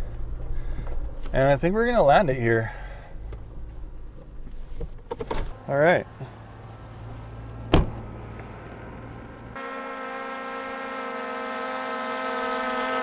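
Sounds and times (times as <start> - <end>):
low hum: 5.4 - 12.9
drone propellers whining: 5.5 - 13.0.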